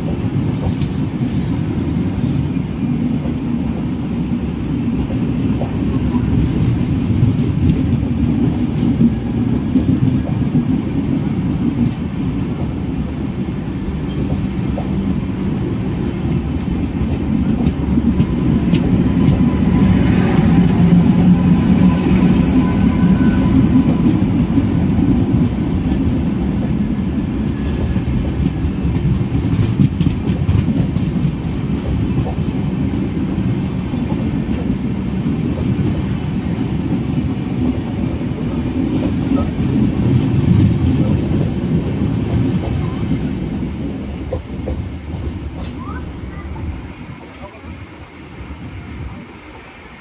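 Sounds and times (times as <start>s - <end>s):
passing passenger train: 0.0s - 50.0s
train rumble with wheel clatter: 0.0s - 50.0s.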